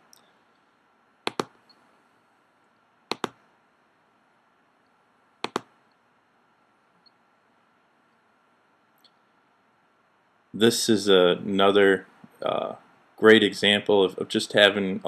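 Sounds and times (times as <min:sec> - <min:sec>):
computer mouse clicking: 0:01.3 - 0:01.8, 0:03.1 - 0:03.4, 0:05.4 - 0:05.7.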